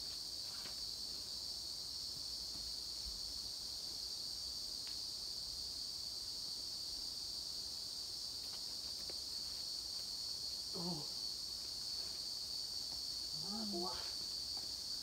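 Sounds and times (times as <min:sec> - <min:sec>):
insects buzzing: 0:00.0 - 0:15.0
person's voice: 0:13.4 - 0:14.2.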